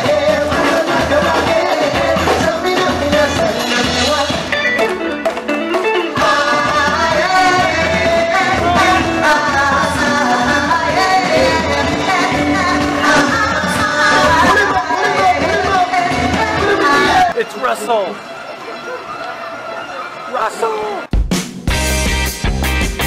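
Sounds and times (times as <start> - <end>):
person singing: 0.0 - 17.4
live band playing upbeat music: 0.0 - 18.6, 20.3 - 23.0.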